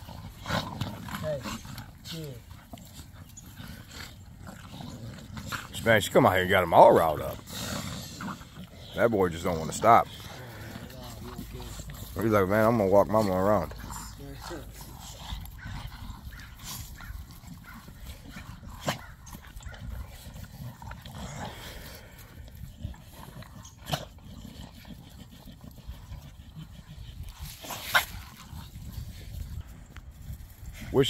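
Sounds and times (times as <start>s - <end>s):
sharp dog sounds: 0.0s - 21.6s.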